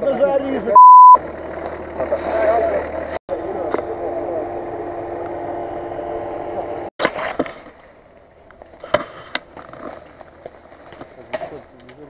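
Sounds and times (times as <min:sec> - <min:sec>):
car engine running: 0:01.2 - 0:06.9.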